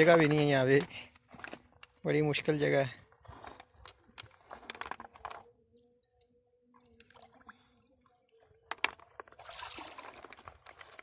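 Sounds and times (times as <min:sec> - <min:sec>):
water splashing and sloshing: 0:06.8 - 0:08.1, 0:08.7 - 0:11.0.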